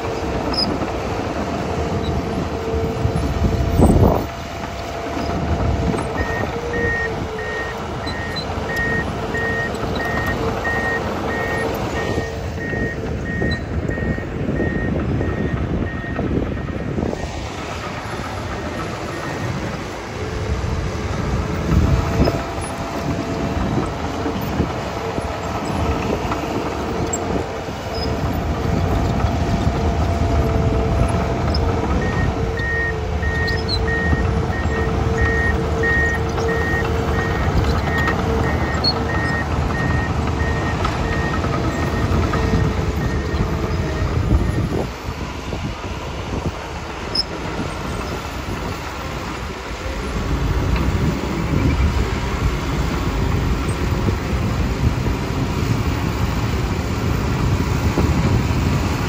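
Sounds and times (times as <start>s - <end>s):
diesel engine running under load: 0.0s - 59.0s
track noise: 0.0s - 59.0s
backup alarm beeping: 6.2s - 17.2s.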